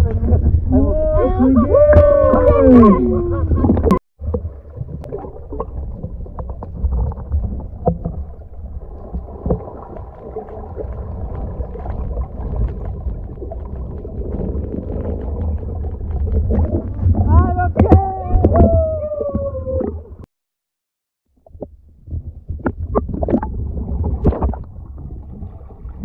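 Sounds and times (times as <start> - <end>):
muffled underwater rumble: 0.0 - 20.3, 21.3 - 26.0
small clicks and bubbling crackles: 3.6 - 18.7, 21.3 - 26.0.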